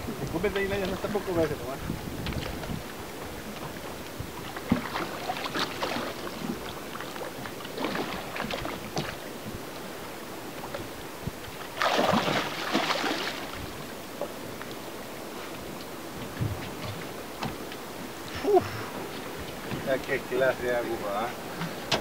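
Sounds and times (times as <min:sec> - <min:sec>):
water washing against hull: 0:00.0 - 0:22.0
fish thrashing and splashing: 0:04.6 - 0:06.5, 0:11.8 - 0:13.6.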